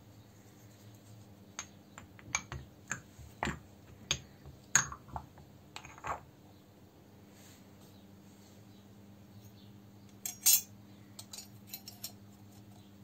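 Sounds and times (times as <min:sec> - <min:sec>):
clicks and knocks of hard objects: 0:01.6 - 0:06.2.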